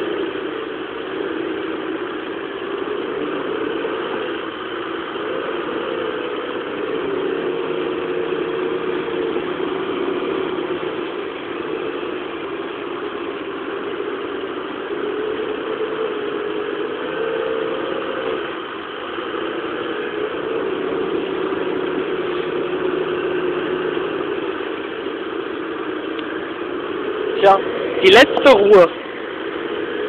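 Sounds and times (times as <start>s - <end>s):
excavator engine running: 0.0s - 30.0s.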